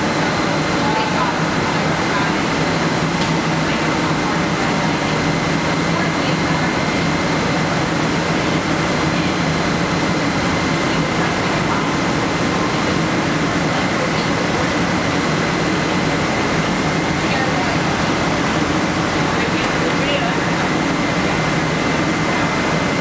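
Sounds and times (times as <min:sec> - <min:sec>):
low machinery hum: 0:00.0 - 0:23.0
machinery high whine: 0:00.0 - 0:23.0.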